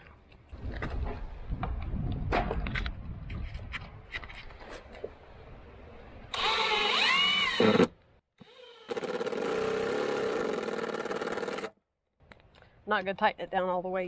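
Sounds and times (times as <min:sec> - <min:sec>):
cordless drill whining: 0:06.3 - 0:11.7.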